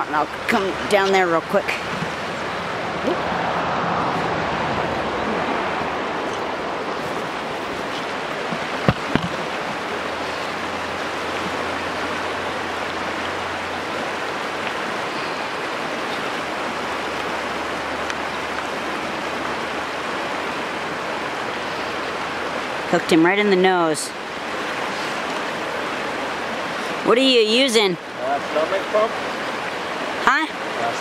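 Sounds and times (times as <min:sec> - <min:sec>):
river water rushing through riffles: 0:00.0 - 0:31.0
sharp knocks: 0:07.9 - 0:09.4.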